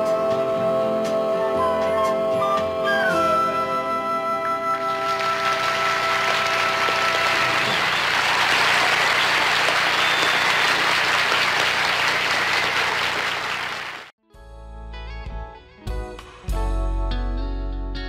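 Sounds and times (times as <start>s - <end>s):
audience applauding: 4.9s - 14.1s.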